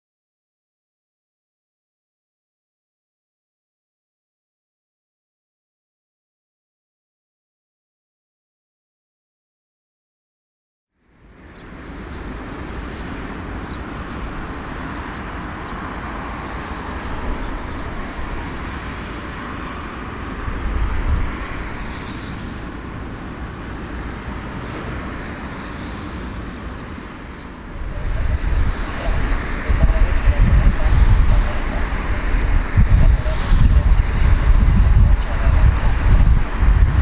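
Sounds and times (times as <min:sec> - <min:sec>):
rumbling vehicle noise: 0:11.0 - 0:37.0.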